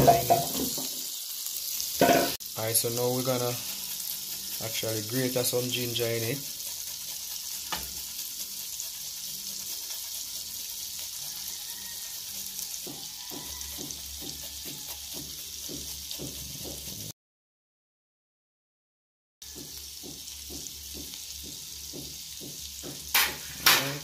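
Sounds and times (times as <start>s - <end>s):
butter sizzling in a pan: 0.0s - 17.1s, 19.4s - 24.0s
grating on metal grater: 2.8s - 17.1s.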